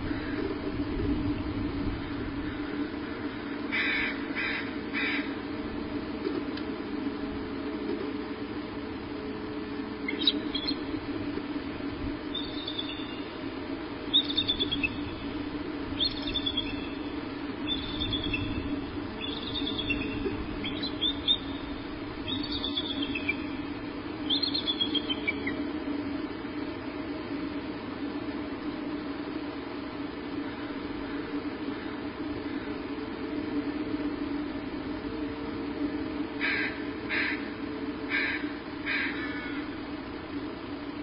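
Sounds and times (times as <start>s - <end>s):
steady low hum: 0.0s - 41.0s
eagle chirping: 10.0s - 11.0s, 12.2s - 25.6s.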